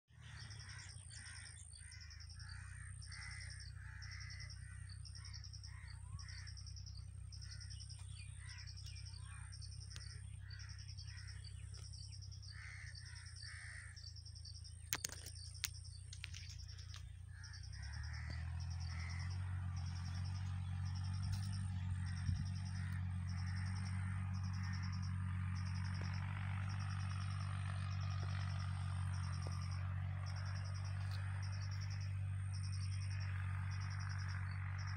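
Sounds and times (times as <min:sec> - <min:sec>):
high pulsing chirp: 0:00.1 - 0:34.9
low steady hum: 0:00.1 - 0:34.9
crow cawing: 0:00.3 - 0:06.7, 0:07.4 - 0:14.2, 0:16.7 - 0:26.8.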